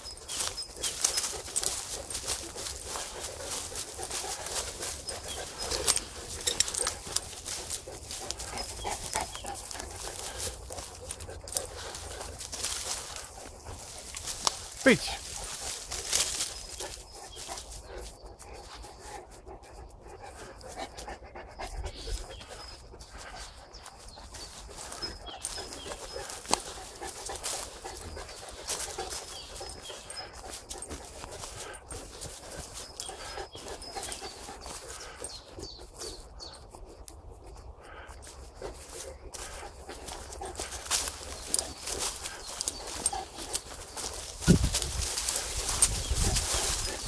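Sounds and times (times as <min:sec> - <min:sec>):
dry leaves crackling underfoot: 0:00.0 - 0:19.2, 0:23.2 - 0:35.6, 0:37.9 - 0:47.0
dog panting: 0:00.0 - 0:47.0.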